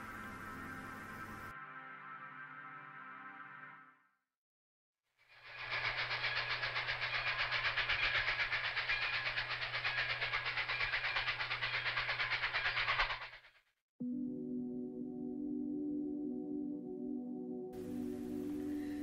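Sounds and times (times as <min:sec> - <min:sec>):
train clattering on rails: 0:05.3 - 0:13.5.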